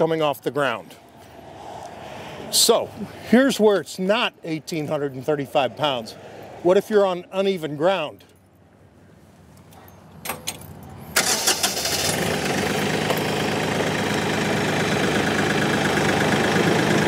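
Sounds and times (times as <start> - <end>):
tractor diesel engine starting: 11.1 - 17.0.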